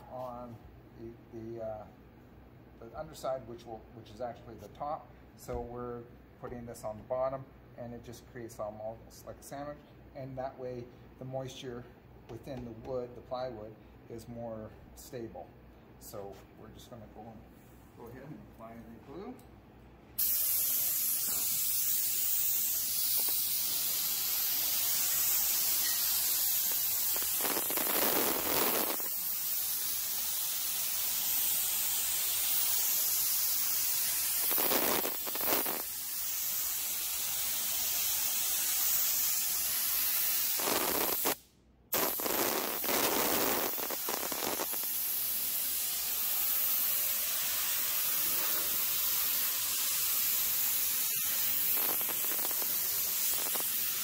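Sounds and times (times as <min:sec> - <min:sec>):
spray gun hissing: 0:20.2 - 0:54.0.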